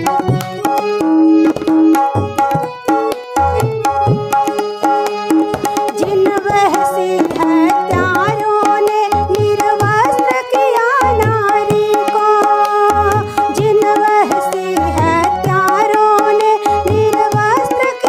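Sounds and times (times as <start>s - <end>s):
harmonium held notes: 0.0s - 18.0s
tabla playing a rhythm: 0.0s - 18.0s
woman singing a folk melody: 5.9s - 18.0s.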